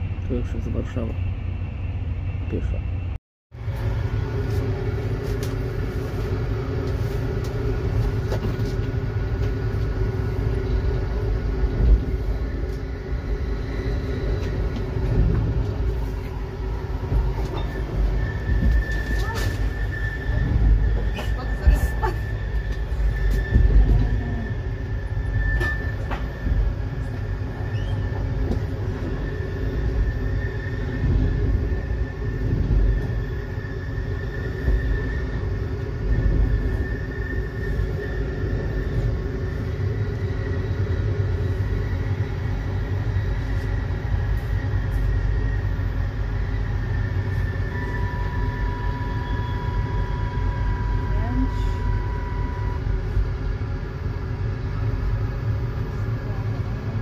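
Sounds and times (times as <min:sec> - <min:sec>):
passing train rush: 0:00.0 - 0:57.0
train wheels rumbling on track: 0:00.0 - 0:57.0
thin high whine: 0:44.4 - 0:53.3.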